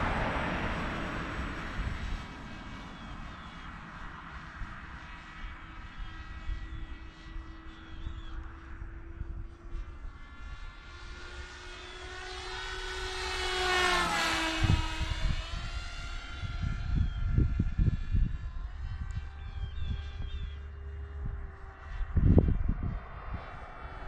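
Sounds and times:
model plane motor buzzing: 0:00.0 - 0:24.0.

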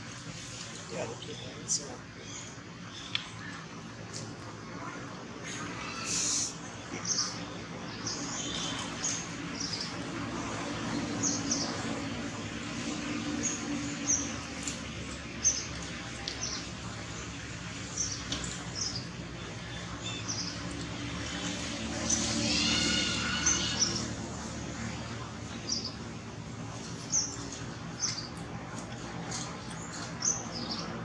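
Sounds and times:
small birds chirping: 0:00.2 - 0:04.3, 0:12.8 - 0:31.0.

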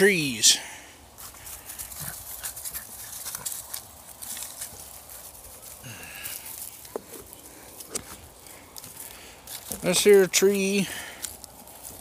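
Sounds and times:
footsteps crunching through dry leaves: 0:01.0 - 0:12.0.

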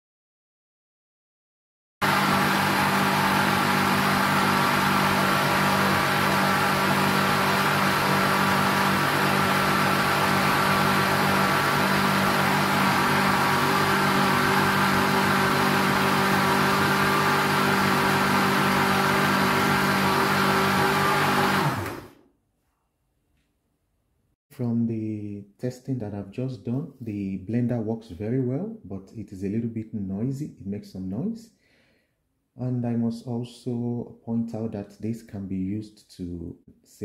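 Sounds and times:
blender motor humming: 0:02.0 - 0:22.2.

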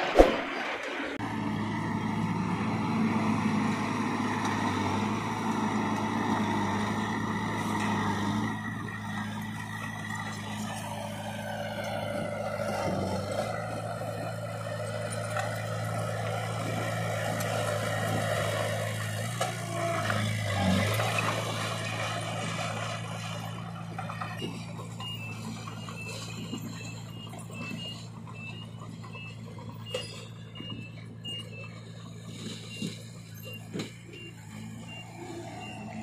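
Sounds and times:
diesel engines running: 0:00.0 - 0:36.0
two-tone reversing beeps: 0:24.2 - 0:36.0.

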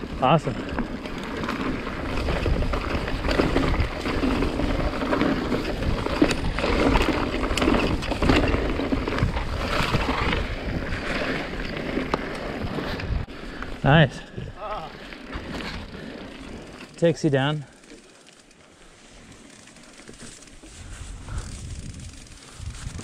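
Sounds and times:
bike knocks and rattles: 0:00.3 - 0:13.1
wind rushing over microphone: 0:01.6 - 0:11.7, 0:20.7 - 0:23.0.

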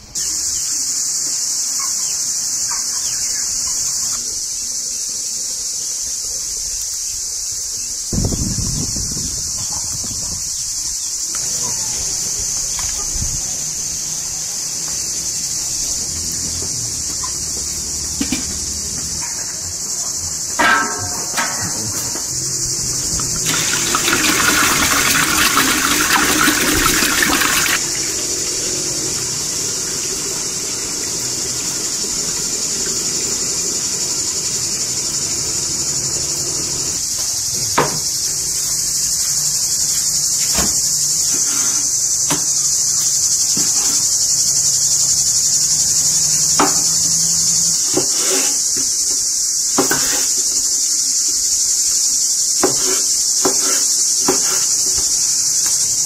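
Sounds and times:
high-pitched insect chorus: 0:00.0 - 0:56.0
water pouring into metal pot: 0:23.1 - 0:32.4.

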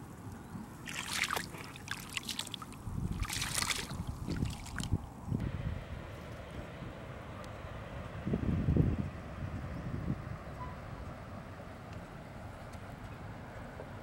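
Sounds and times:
faint wind hiss: 0:00.0 - 0:14.0
water splashes: 0:00.7 - 0:05.1
feet wading through water: 0:00.7 - 0:05.2.

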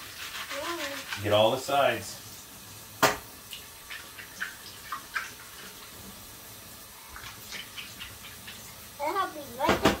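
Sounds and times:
sponge scrubbing glass bowl: 0:00.0 - 0:02.0
tap running into sink: 0:03.0 - 0:05.4, 0:09.6 - 0:10.0.

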